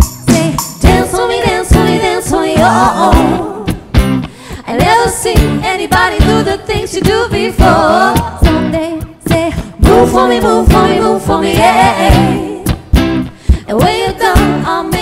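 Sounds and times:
women singing in harmony: 0.2s - 3.9s, 4.6s - 12.8s, 13.5s - 15.0s.

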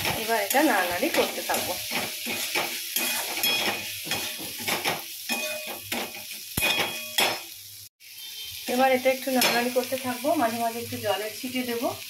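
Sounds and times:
spatula scraping a pan: 0.0s - 7.4s
food sizzling: 0.0s - 12.0s.

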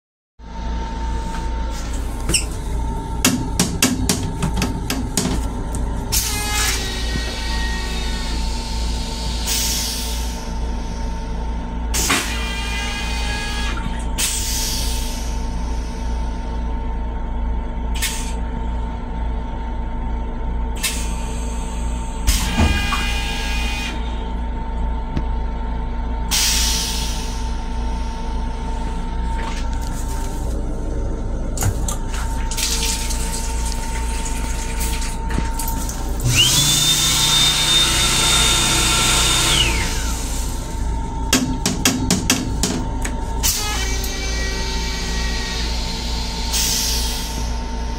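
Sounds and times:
low rumble of moving train: 0.4s - 12.0s, 24.1s - 32.4s
toilet flushing with rising whine: 0.4s - 47.9s.

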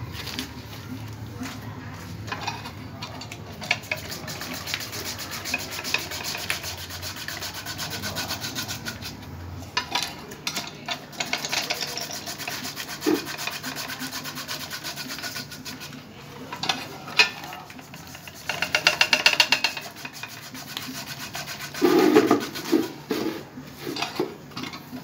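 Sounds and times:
blade shaving potatoes rasping: 3.8s - 9.3s, 11.2s - 16.0s, 19.7s - 23.2s.

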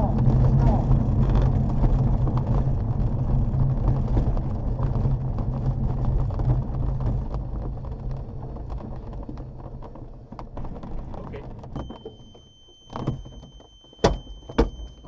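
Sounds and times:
wheel rumbling over grass: 0.0s - 15.0s.

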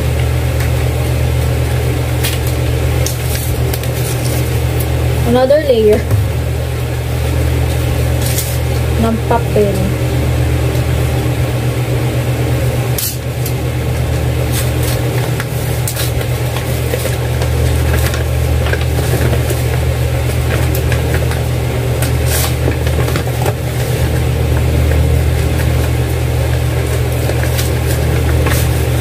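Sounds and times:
loud steady low hum: 0.0s - 29.0s
wrapping paper crackling: 2.2s - 4.9s, 14.1s - 24.3s, 25.4s - 29.0s.

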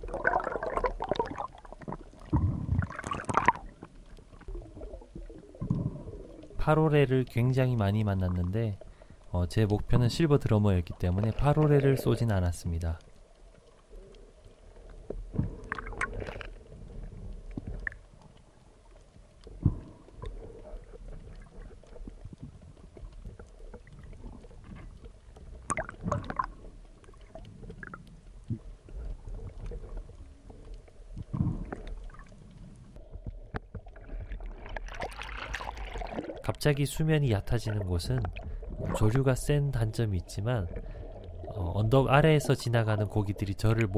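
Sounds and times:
rush of bubbles: 0.0s - 3.9s, 15.5s - 16.5s, 25.7s - 28.0s, 34.0s - 36.6s
underwater rumble of moving water: 0.0s - 43.9s.

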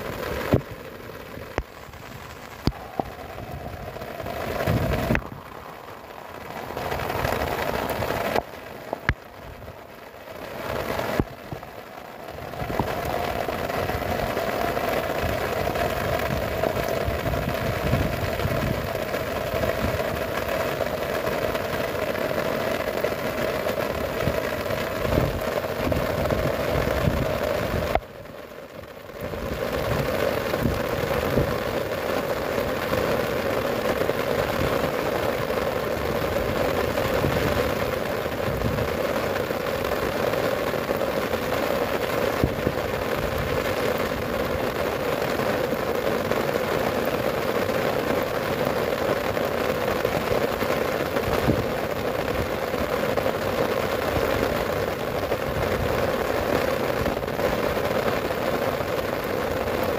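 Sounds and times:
wind buffeting microphone: 0.0s - 28.3s, 29.2s - 45.5s
heavy rain: 0.0s - 59.9s.

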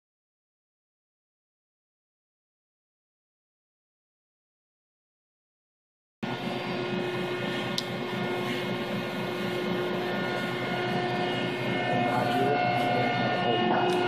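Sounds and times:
hydraulic unit hum with whine: 6.2s - 14.0s
high tick: 7.7s - 7.9s.

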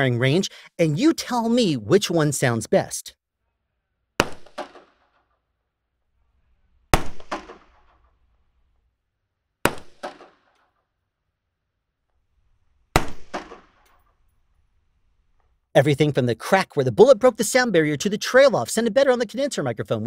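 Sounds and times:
rifle shots: 4.2s - 5.2s, 6.9s - 8.2s, 9.6s - 10.6s, 12.9s - 13.8s.

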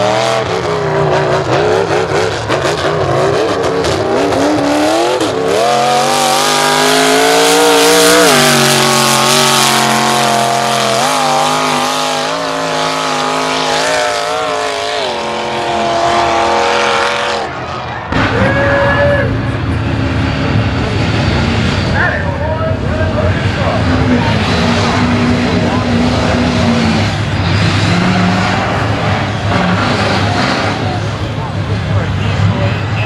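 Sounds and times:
truck engine revving hard: 0.0s - 33.0s.

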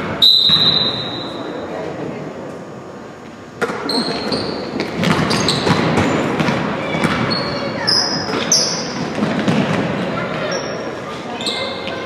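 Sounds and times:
sneakers squeaking: 0.0s - 1.7s, 3.6s - 12.0s
voices in a gym: 0.0s - 12.0s
basketball bouncing: 4.8s - 7.6s.

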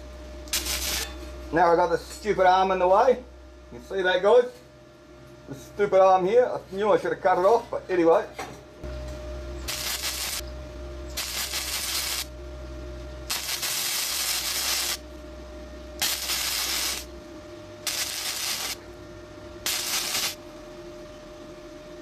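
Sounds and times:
faint steady hum: 0.0s - 22.0s
welding arc crackling and hissing: 0.5s - 1.1s, 9.6s - 10.4s, 11.1s - 12.3s, 13.3s - 15.0s, 16.0s - 17.1s, 17.8s - 18.8s, 19.6s - 20.4s.

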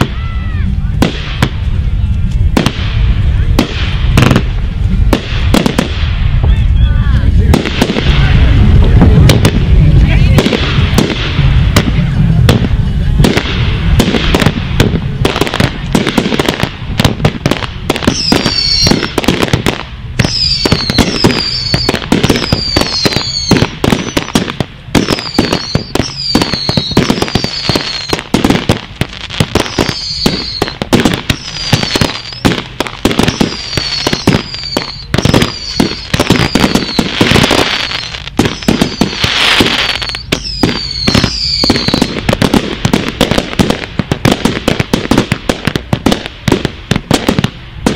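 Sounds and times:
firework hiss: 0.0s - 47.9s
fireworks bangs and cracks: 0.0s - 47.9s
falling firework whistle: 17.9s - 19.6s, 20.2s - 28.8s, 29.4s - 42.2s.

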